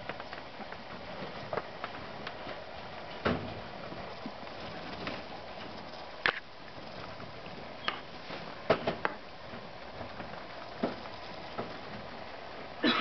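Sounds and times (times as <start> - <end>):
steady low hiss: 0.0 - 13.0.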